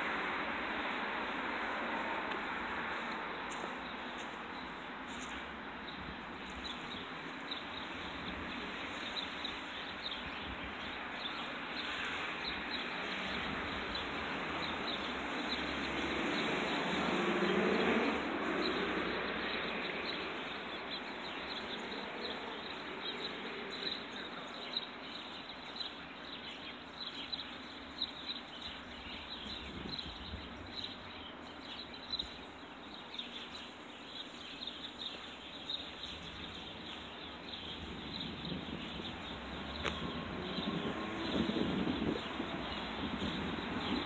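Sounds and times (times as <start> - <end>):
outdoor background noise: 0.0 - 44.0.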